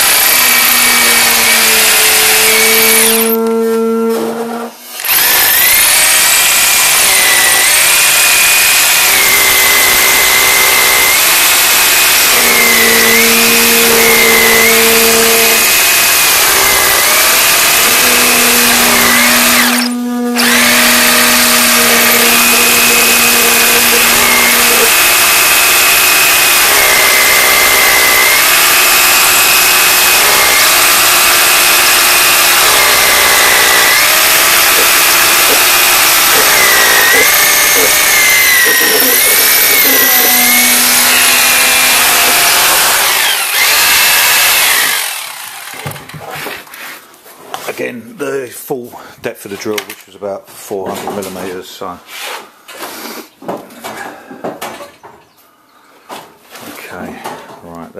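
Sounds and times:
hammer drill boring into wall: 0.0s - 46.6s.

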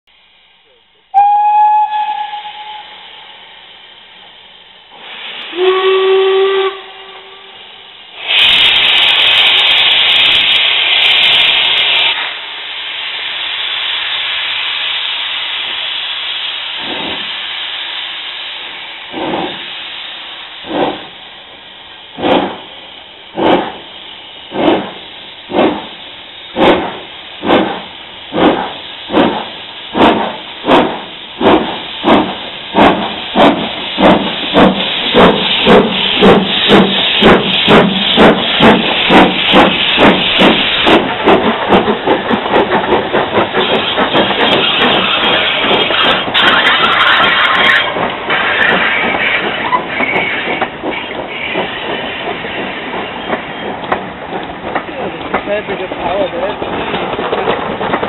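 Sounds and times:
loud steam hiss: 0.2s - 58.0s
high steam whistle: 1.1s - 3.4s, 5.3s - 10.4s
lower steam whistle: 1.1s - 3.4s, 5.5s - 7.8s
locomotive exhaust beats: 18.6s - 58.0s.

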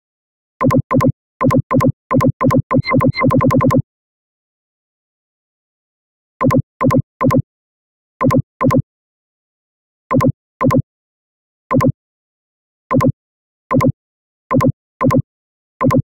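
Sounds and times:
computer mouse button clicking: 2.8s - 3.3s.

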